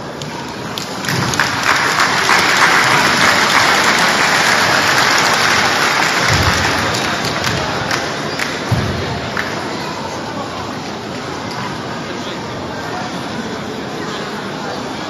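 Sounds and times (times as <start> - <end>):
audience applauding: 0.8 - 9.6.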